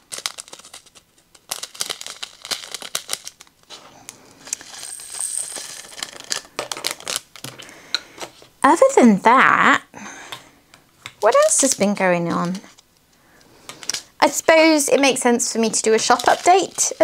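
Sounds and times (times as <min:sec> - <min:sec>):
plastic bag crinkling: 0:00.0 - 0:07.7, 0:13.7 - 0:17.0
tiny resin beads rattling and clicking: 0:00.1 - 0:03.5, 0:04.5 - 0:07.2, 0:15.6 - 0:17.0.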